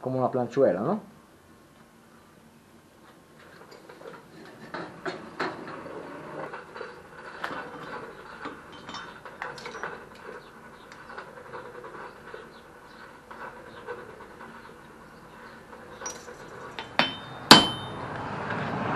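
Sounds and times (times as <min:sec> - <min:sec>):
tongs and steel clinking: 0:16.0 - 0:18.0.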